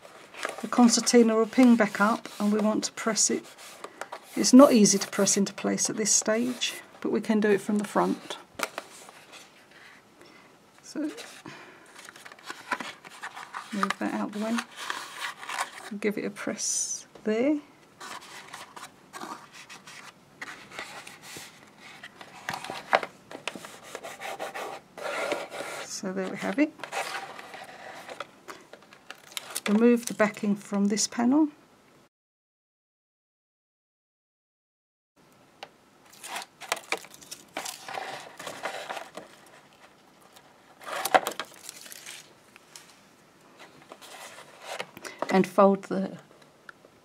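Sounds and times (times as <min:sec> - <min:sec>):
paper and card rustling: 0:00.0 - 0:10.0, 0:11.0 - 0:16.1, 0:18.0 - 0:30.6, 0:36.1 - 0:43.0, 0:43.6 - 0:45.5
card rubbing and scraping: 0:18.0 - 0:28.3, 0:36.1 - 0:41.4, 0:43.6 - 0:45.0.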